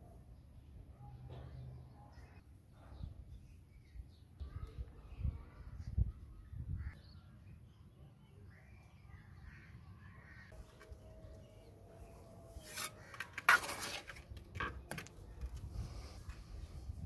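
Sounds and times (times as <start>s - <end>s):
trowel scraping mortar: 12.5s - 14.3s.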